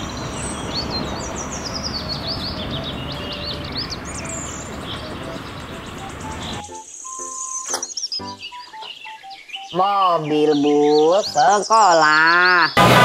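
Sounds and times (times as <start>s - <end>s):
outdoor background rumble and hiss: 0.0s - 6.7s
small birds chirping: 0.0s - 12.8s.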